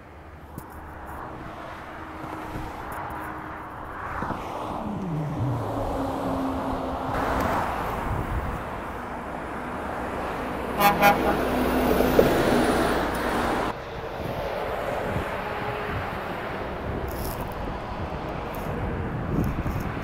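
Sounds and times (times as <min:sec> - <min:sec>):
lorry traffic passing: 0:00.1 - 0:17.1
truck horn toots: 0:10.7 - 0:11.6.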